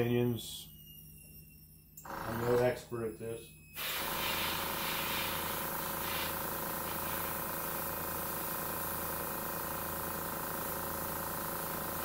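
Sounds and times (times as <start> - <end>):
air compressor humming: 2.0 - 12.0
airbrush spraying hiss: 3.8 - 10.0.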